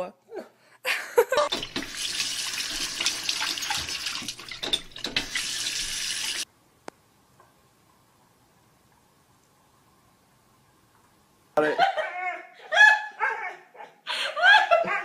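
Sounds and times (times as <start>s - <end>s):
water running from tap into sink: 1.5s - 6.4s.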